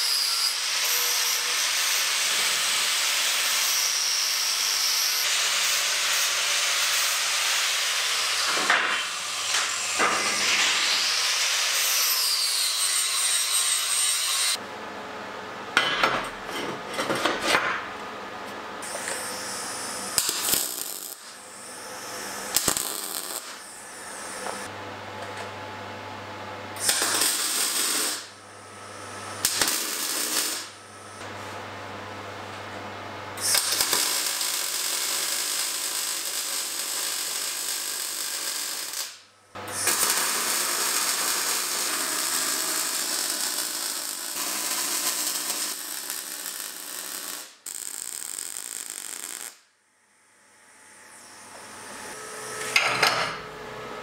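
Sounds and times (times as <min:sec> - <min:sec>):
welding arc crackling: 0:18.8 - 0:24.7, 0:26.8 - 0:28.4, 0:29.4 - 0:31.2, 0:33.4 - 0:49.7.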